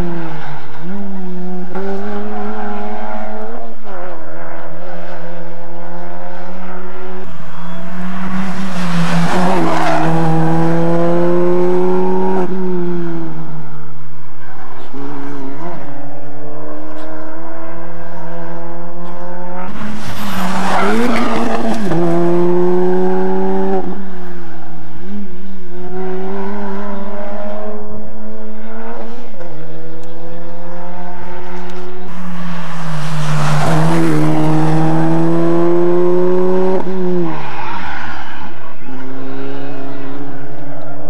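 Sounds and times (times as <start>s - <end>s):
rally car engine revving through gears: 0.0s - 13.8s, 14.5s - 37.5s
car passing close: 7.3s - 13.2s, 19.3s - 24.5s, 31.2s - 40.6s.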